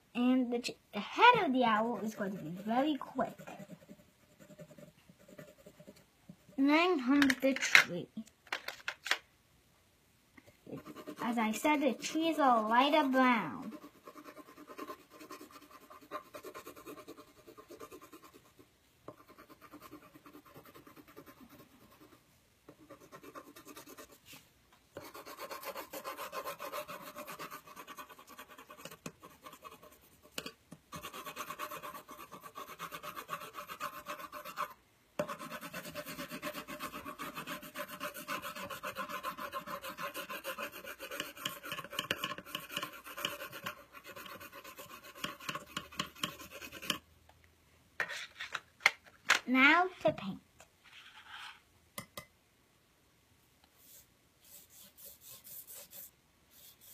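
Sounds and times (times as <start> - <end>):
pencil scribbling on paper: 1.2 - 6.8, 10.7 - 24.2, 25.0 - 47.0, 53.8 - 56.9.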